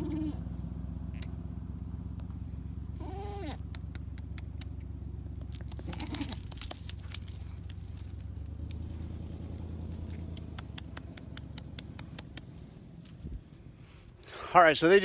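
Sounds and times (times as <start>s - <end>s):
truck engine rumbling: 0.0s - 15.0s
goat bleating: 3.0s - 3.6s, 5.6s - 6.7s.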